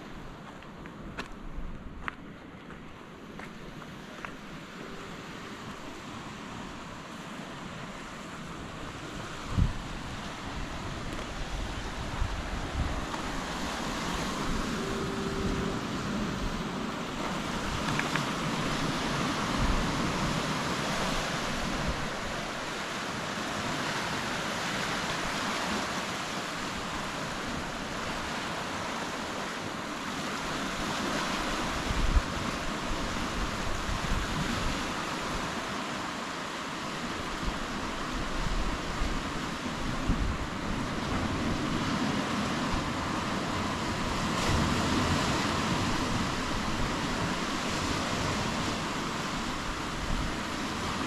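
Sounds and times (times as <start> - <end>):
ocean surf washing: 0.0 - 51.0
wind on microphone: 8.6 - 22.6, 30.5 - 35.6, 37.3 - 51.0.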